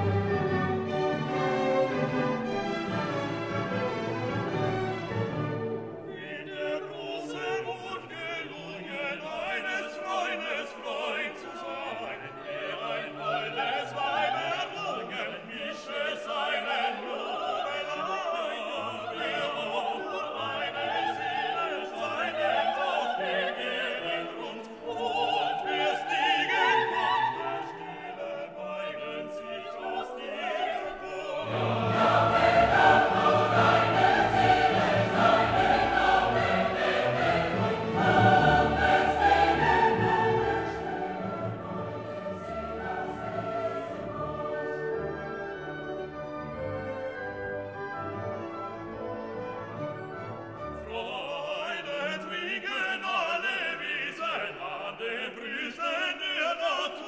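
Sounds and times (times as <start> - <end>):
operatic choir and orchestra music: 0.0 - 57.0.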